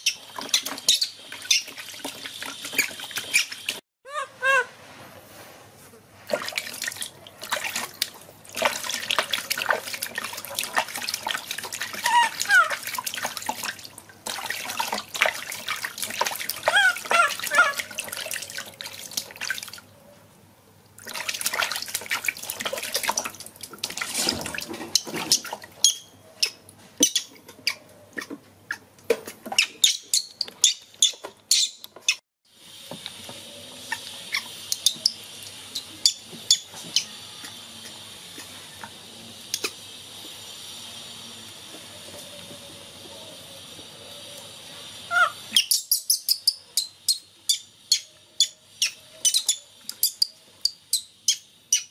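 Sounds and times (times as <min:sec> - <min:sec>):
water splashing in a tub: 0:00.0 - 0:03.8, 0:06.2 - 0:19.9, 0:20.9 - 0:26.0
water dripping: 0:06.3 - 0:19.8, 0:21.0 - 0:27.3
steady hiss: 0:37.1 - 0:45.1.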